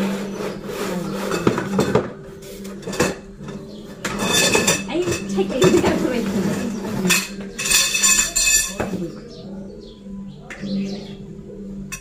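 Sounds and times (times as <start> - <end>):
parts knocking on tiled floor: 1.3 - 2.2, 2.8 - 9.0.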